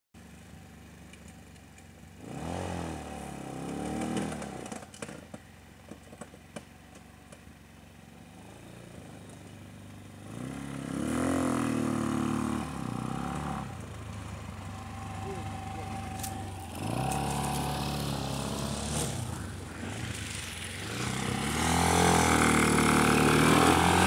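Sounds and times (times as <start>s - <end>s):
small engine idling and revving: 0.2s - 24.0s.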